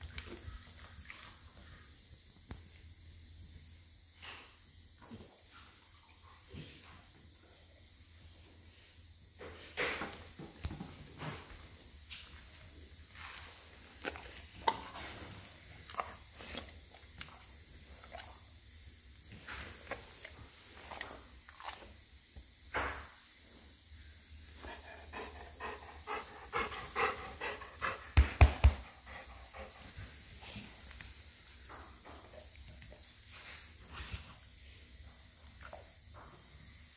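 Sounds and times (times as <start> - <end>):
dog panting: 24.6 - 30.7.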